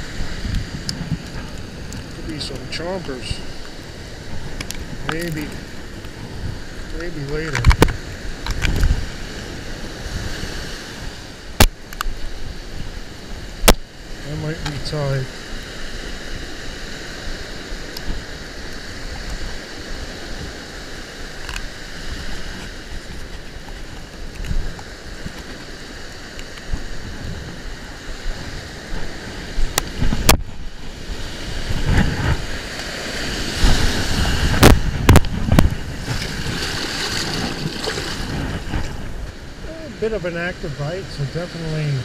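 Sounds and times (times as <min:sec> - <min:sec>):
ocean surf breaking: 0:00.0 - 0:42.0
wind on microphone: 0:00.0 - 0:42.0.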